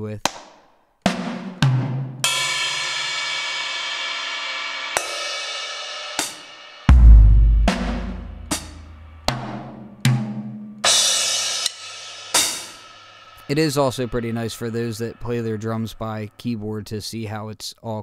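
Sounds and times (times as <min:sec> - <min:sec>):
cymbal crash: 0:02.2 - 0:09.3, 0:10.9 - 0:16.3
deep low drum hit: 0:06.9 - 0:09.1.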